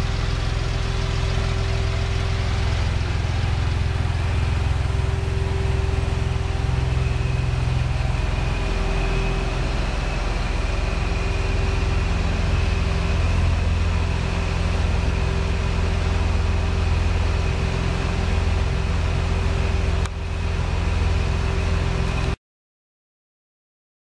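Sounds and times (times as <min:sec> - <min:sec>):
car engine idling: 0:00.0 - 0:22.4.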